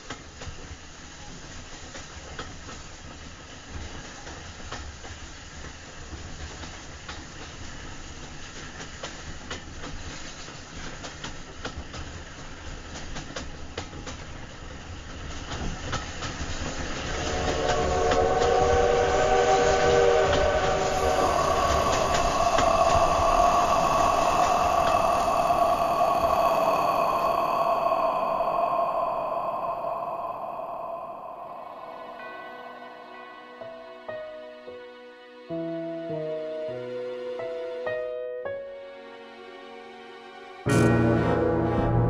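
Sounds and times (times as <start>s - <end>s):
train rumbling: 4.7s - 34.4s
held chord of steady tones: 16.8s - 34.8s, 40.7s - 42.0s.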